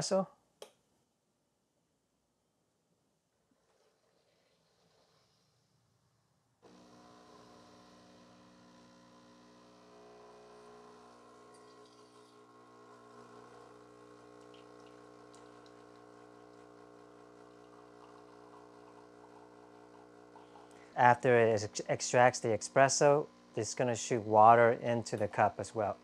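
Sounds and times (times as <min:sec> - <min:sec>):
espresso machine pump humming: 0:06.7 - 0:26.0.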